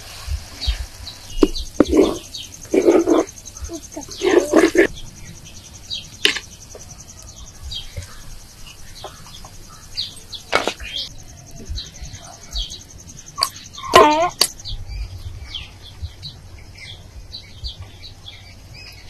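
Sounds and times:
high insect trill: 0.0 - 19.0
wooden spoon scraping clay pot: 1.3 - 3.4.

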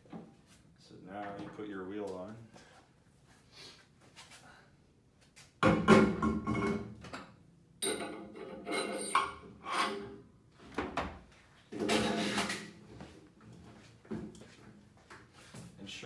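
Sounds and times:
metal clunks and scrapes: 7.8 - 11.0, 11.8 - 12.7.

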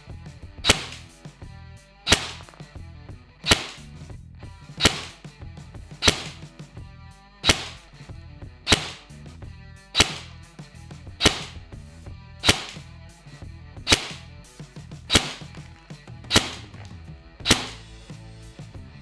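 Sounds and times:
background music: 0.0 - 19.0
airsoft rifle shots: 0.6 - 1.1, 2.1 - 2.6, 3.4 - 3.9, 4.8 - 5.2, 6.0 - 6.5, 7.4 - 7.9, 8.6 - 9.1, 10.0 - 10.5, 11.2 - 11.6, 12.4 - 12.9, 13.8 - 14.3, 15.1 - 15.7, 16.3 - 16.8, 17.4 - 17.8.

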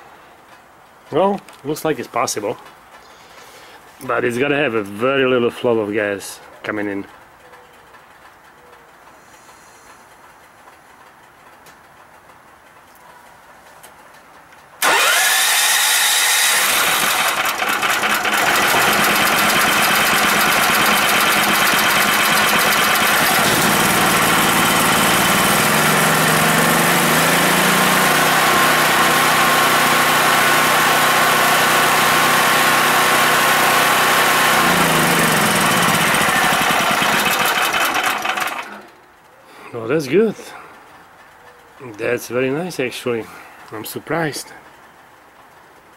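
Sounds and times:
generator engine running: 14.8 - 39.2.

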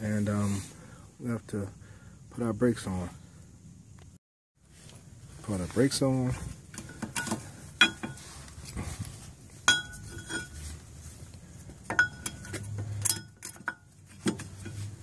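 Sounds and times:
brake pads clinking on metal: 6.6 - 8.8, 9.5 - 15.0.

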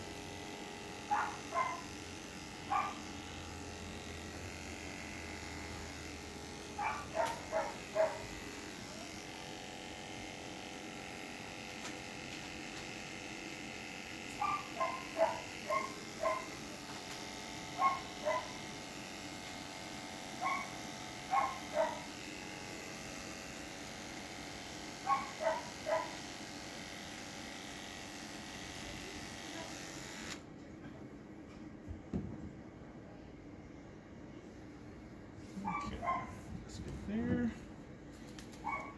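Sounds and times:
electric clippers humming: 0.0 - 30.6, 38.2 - 38.9
dog barking: 1.1 - 1.9, 2.7 - 3.1, 6.8 - 8.3, 14.4 - 16.6, 17.8 - 18.6, 20.4 - 22.1, 25.0 - 26.2, 35.6 - 36.4, 38.6 - 38.9.

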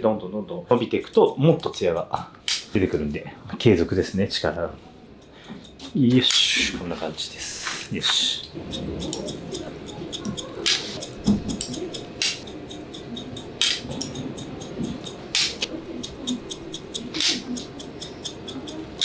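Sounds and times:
scissors snipping hair: 1.0 - 2.7, 5.2 - 6.5, 7.7 - 19.0.

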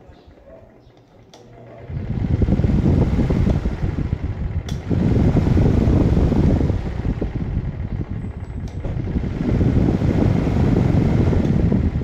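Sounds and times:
fan airflow rumble on microphone: 0.0 - 12.0.

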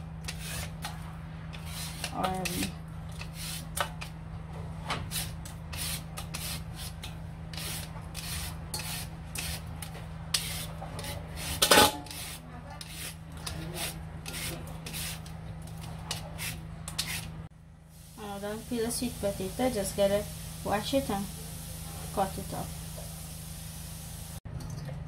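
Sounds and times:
peeler scraping sweet potato: 0.2 - 3.8, 5.0 - 17.3.

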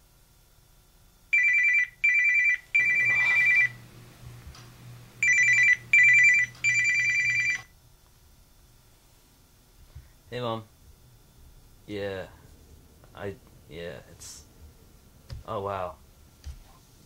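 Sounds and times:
two-tone phone ringtone: 1.3 - 3.8, 5.2 - 7.7
low buzz: 2.6 - 7.0.

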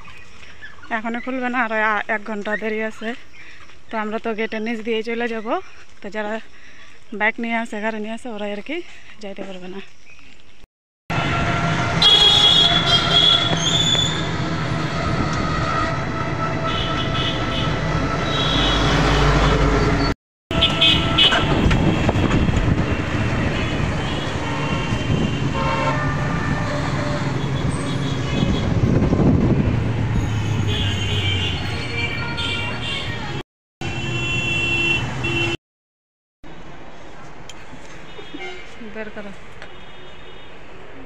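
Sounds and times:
engine and road noise: 8.5 - 35.6, 36.4 - 41.0
vehicle horn toots: 11.1 - 14.1, 15.6 - 18.9, 20.5 - 22.1, 23.6 - 28.8, 30.4 - 33.2, 33.8 - 35.6.

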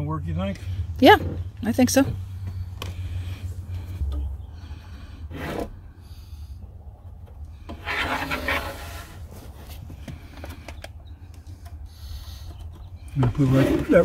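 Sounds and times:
tape measure scraping on wood: 7.7 - 9.5.

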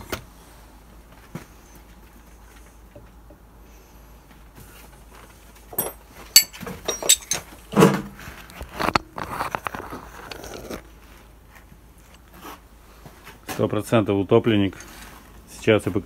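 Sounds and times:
metal tools and parts clinking: 5.7 - 8.0.

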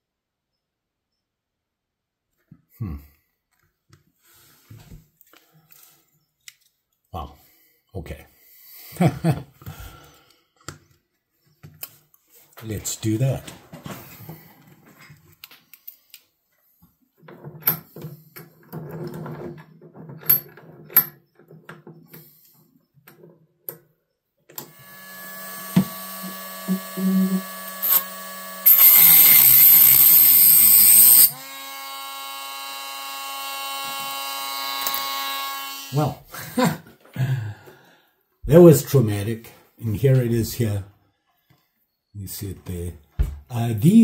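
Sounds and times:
cut-off wheel grinding metal: 24.6 - 35.7
rotary tool spinning: 24.8 - 31.4.

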